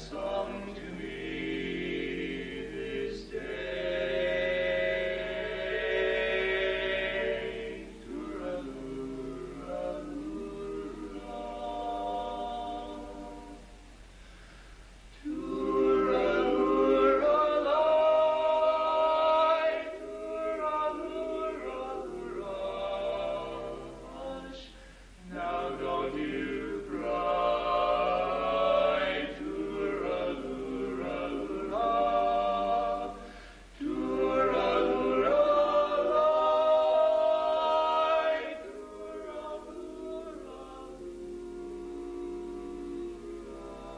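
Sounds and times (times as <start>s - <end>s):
male voices singing a cappella: 0.0s - 13.7s, 15.2s - 43.9s.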